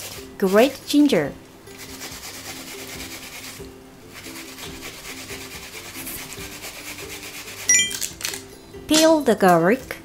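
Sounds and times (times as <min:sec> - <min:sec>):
onion grating on plastic grater: 0:00.0 - 0:01.1, 0:01.7 - 0:08.4
soft background music: 0:00.0 - 0:10.0.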